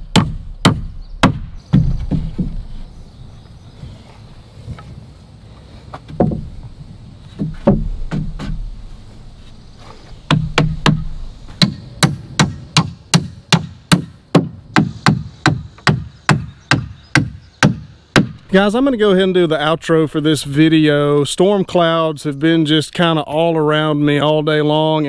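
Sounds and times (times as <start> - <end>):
hammer knocking on wood framing: 0.1 - 2.7, 6.1 - 6.6, 7.4 - 8.7, 10.3 - 18.4.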